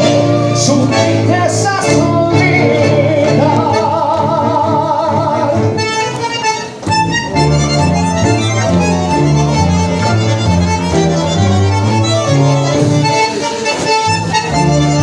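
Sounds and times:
tango ensemble playing: 0:00.0 - 0:15.0.

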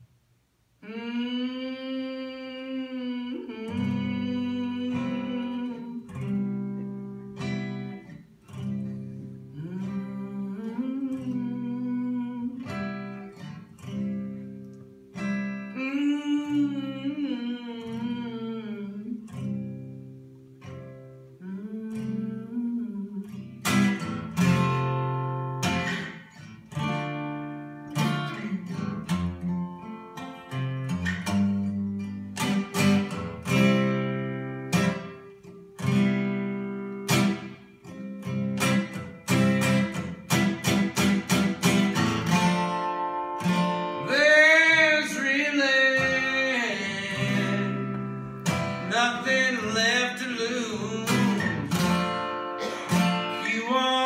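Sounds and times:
person singing: 0:00.8 - 0:07.2, 0:09.5 - 0:13.5, 0:15.6 - 0:19.6, 0:21.4 - 0:23.8, 0:28.0 - 0:29.9, 0:43.4 - 0:52.0, 0:52.6 - 0:54.0
acoustic guitar strumming: 0:00.8 - 0:54.0.

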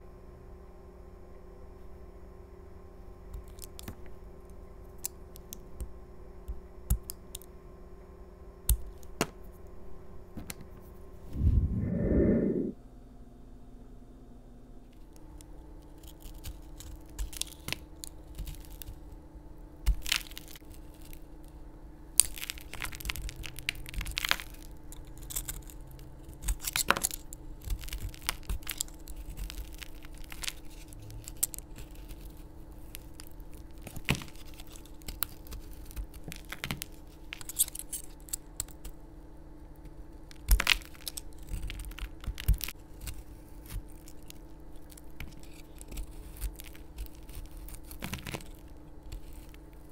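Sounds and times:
faint steady hum: 0:00.0 - 0:49.9
knife cracking bar of soap: 0:15.4 - 0:19.2, 0:19.8 - 0:21.3, 0:22.1 - 0:39.0, 0:39.8 - 0:49.9.

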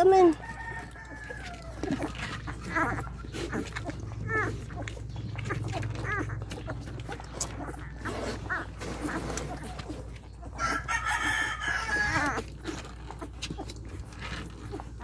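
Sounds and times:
rooster crowing: 0:00.4 - 0:02.0, 0:10.6 - 0:12.4.

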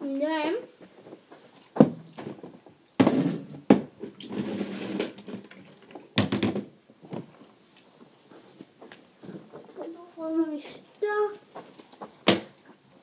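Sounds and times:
rustling: 0:00.8 - 0:06.2, 0:07.0 - 0:13.0
thump: 0:01.8 - 0:02.4, 0:03.0 - 0:04.5
clatter of knocks: 0:03.0 - 0:06.7.

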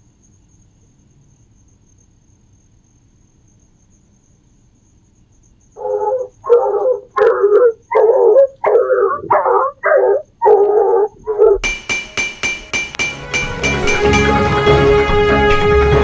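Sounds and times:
cricket trill: 0:00.0 - 0:14.4
dog barking: 0:05.8 - 0:11.6
music with sharp regular beat: 0:11.6 - 0:15.4.

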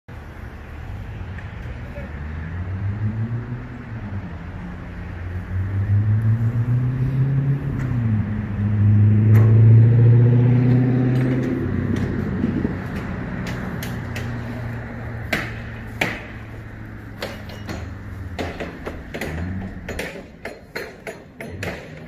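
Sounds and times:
engine revving up and down: 0:01.9 - 0:15.9.

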